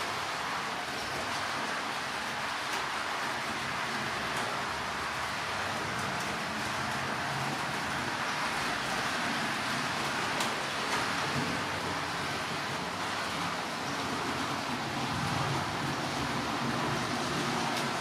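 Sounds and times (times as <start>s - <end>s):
wheels rolling on rails: 0.0s - 18.0s.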